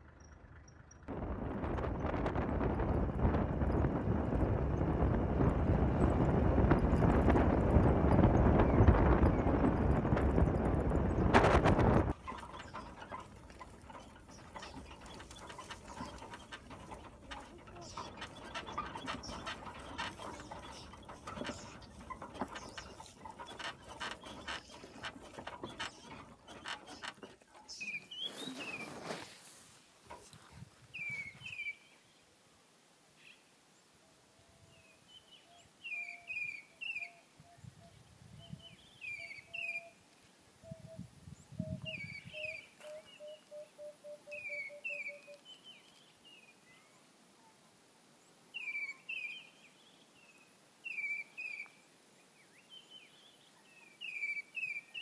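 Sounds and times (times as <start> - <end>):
buffalo herd sounds: 2.7 - 29.4
bird chirps: 12.1 - 29.2, 35.4 - 40.0, 40.6 - 46.1, 52.5 - 55.0.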